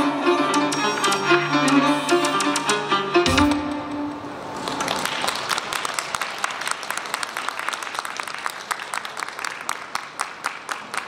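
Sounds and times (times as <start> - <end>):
audience clapping: 4.4 - 11.0.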